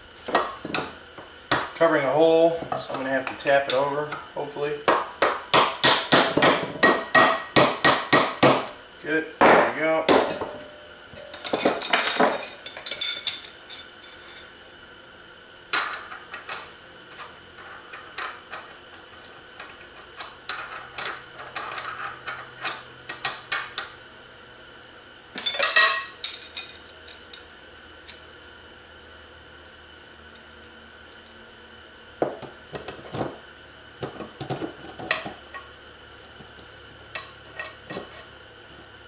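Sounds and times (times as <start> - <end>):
metal engine parts clinking: 11.2 - 14.5.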